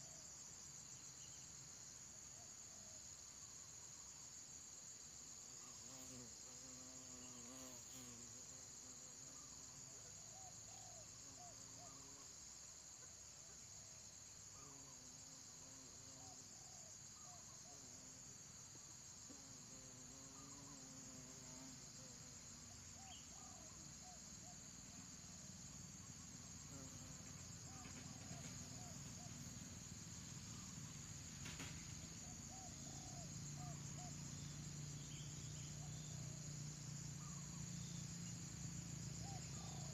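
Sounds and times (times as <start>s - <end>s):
insect chorus buzzing: 0.0s - 39.9s.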